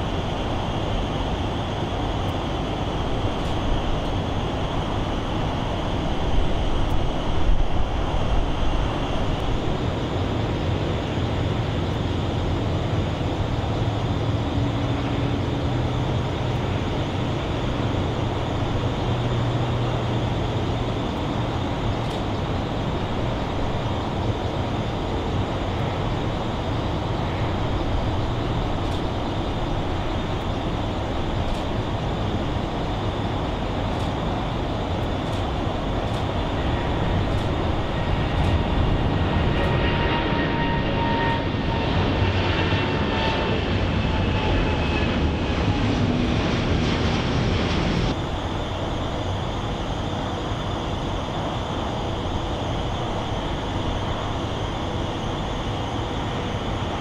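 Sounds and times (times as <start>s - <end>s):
jet engines idling: 0.0s - 57.0s.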